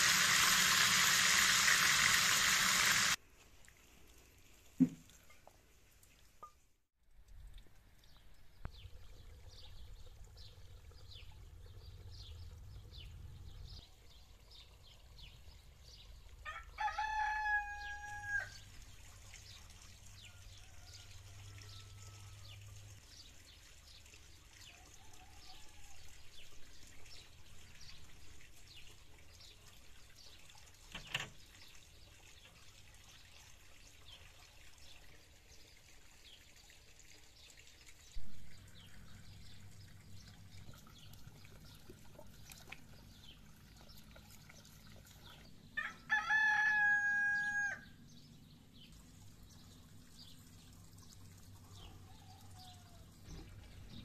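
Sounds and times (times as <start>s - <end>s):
rooster crowing: 16.4s - 18.6s, 45.8s - 47.9s.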